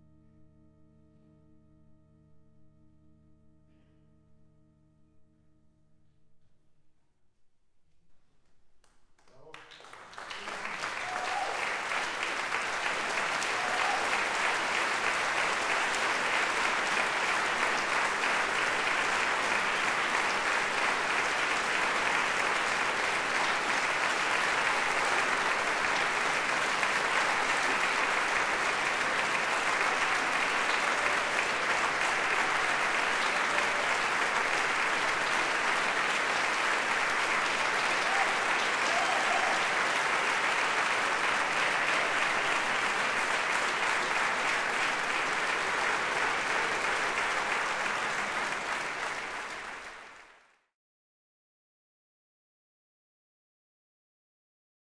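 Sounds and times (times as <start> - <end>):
audience applauding: 8.8 - 50.6.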